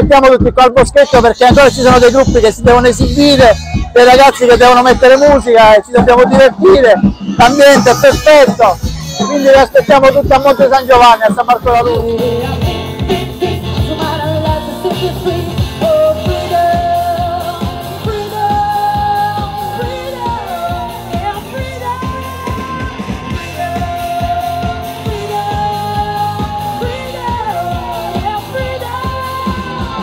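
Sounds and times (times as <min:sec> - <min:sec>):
bass guitar: 0:00.0 - 0:30.0
drums: 0:00.0 - 0:30.0
electric guitar: 0:11.8 - 0:30.0
woman singing: 0:11.9 - 0:30.0.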